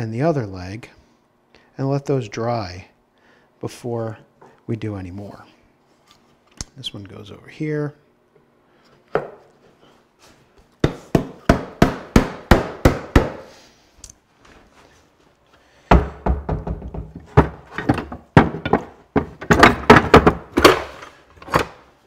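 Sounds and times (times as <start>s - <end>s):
sharp wooden knocks: 10.8s - 13.4s, 15.9s - 21.0s
tools clattering in wooden chest: 17.2s - 21.8s.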